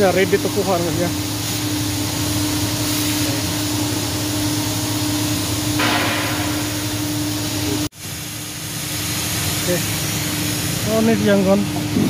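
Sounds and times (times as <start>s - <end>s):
machine humming with hiss: 0.0s - 12.0s
loud hiss: 5.2s - 12.0s.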